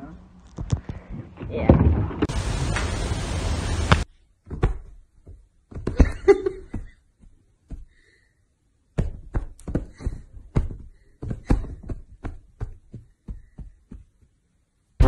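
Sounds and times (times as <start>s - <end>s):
steady hiss: 2.3s - 4.1s
soft thumps and taps: 9.0s - 14.3s.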